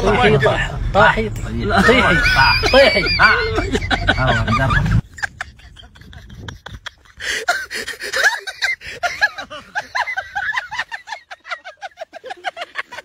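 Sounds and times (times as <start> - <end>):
person laughing hard: 1.8 - 13.0.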